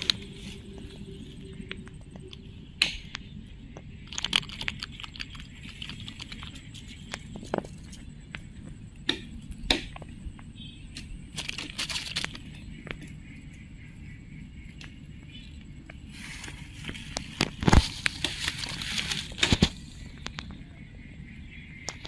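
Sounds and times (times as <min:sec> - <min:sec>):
dry straw crackling: 0:00.0 - 0:02.4, 0:04.1 - 0:08.2, 0:11.3 - 0:13.1, 0:16.0 - 0:20.4.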